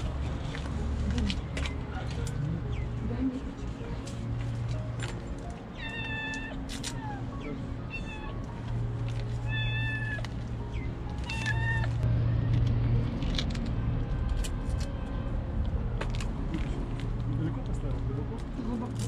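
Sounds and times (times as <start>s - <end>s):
kitten meowing: 5.7s - 8.4s, 9.4s - 10.3s, 11.2s - 12.0s.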